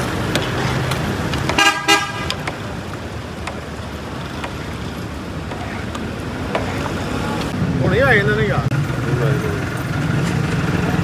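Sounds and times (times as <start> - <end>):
street traffic: 0.0 - 11.0
vehicle horn honking: 1.5 - 2.4.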